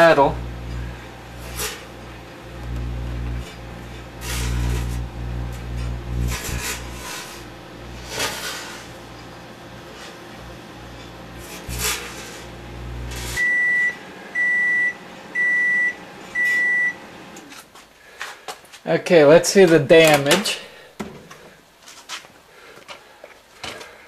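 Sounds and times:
microwave oven humming: 0:00.0 - 0:17.6
metal fork arcing crackle: 0:00.1 - 0:10.2, 0:10.8 - 0:13.4
microwave beeps: 0:13.1 - 0:17.2.

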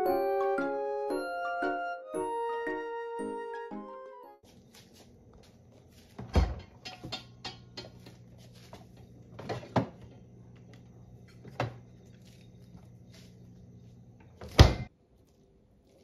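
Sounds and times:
refrigerator door opening thud: 0:14.4 - 0:14.9.

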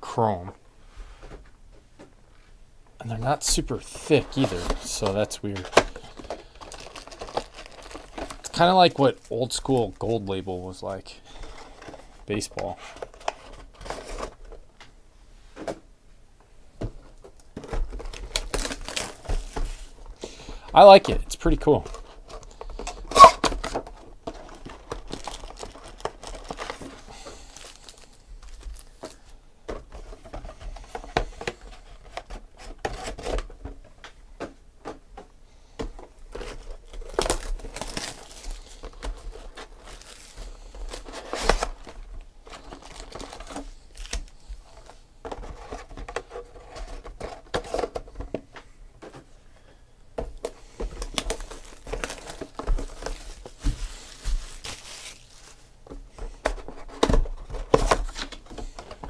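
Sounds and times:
foil packs crinkling: 0:03.2 - 0:14.6, 0:17.4 - 0:29.4, 0:35.9 - 0:48.2, 0:50.3 - 0:55.9.

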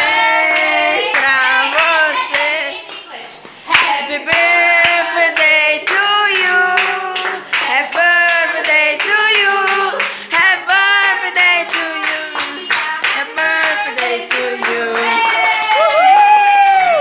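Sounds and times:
group singing: 0:00.0 - 0:15.8
hands clapping: 0:02.4 - 0:10.3, 0:11.7 - 0:15.8.

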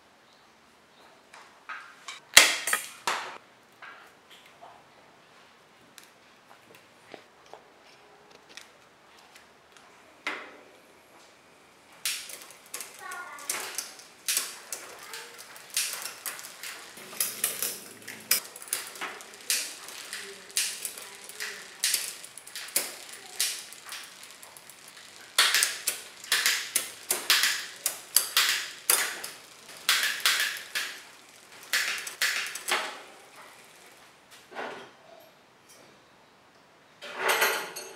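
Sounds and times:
bicycle chain clicking: 0:02.1 - 0:03.1, 0:12.0 - 0:34.1.

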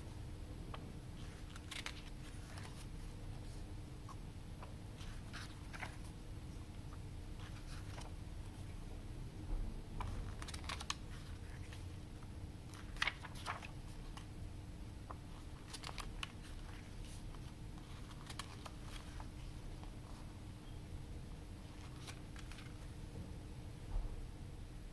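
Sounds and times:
faint steady hum: 0:00.0 - 0:24.9
pages turning: 0:01.2 - 0:03.6, 0:04.6 - 0:06.1, 0:07.4 - 0:08.6, 0:10.0 - 0:11.9, 0:12.6 - 0:14.3, 0:15.1 - 0:20.2, 0:21.6 - 0:23.0.

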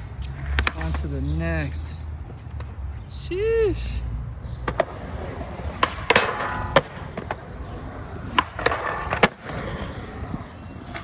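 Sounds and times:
skateboard clacking on ground: 0:00.2 - 0:01.1, 0:04.6 - 0:11.0
skateboard wheels rolling: 0:04.6 - 0:11.0.

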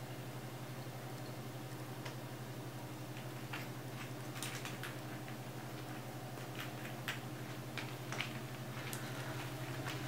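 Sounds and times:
steady low hum: 0:00.0 - 0:10.0
puppy claws clicking on floor: 0:03.2 - 0:10.0.

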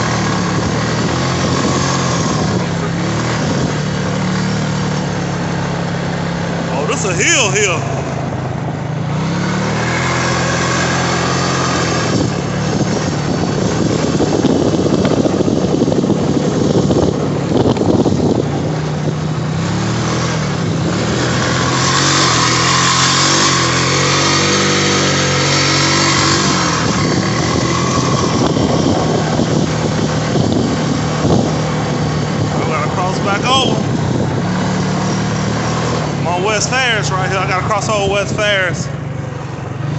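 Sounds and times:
atv engine revving: 0:00.0 - 0:39.9.

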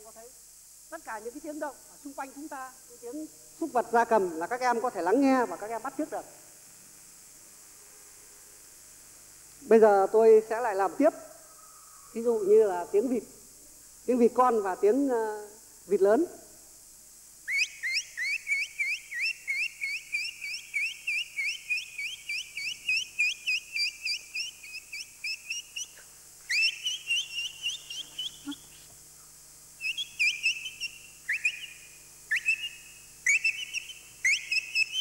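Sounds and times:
man whistling duckling peeps: 0:17.4 - 0:28.9, 0:29.8 - 0:35.0.

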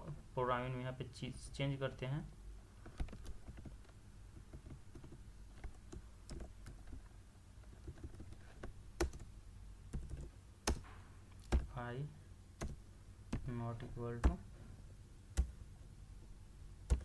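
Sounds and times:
computer keyboard typing: 0:02.9 - 0:09.3, 0:09.9 - 0:11.7, 0:12.6 - 0:13.5.

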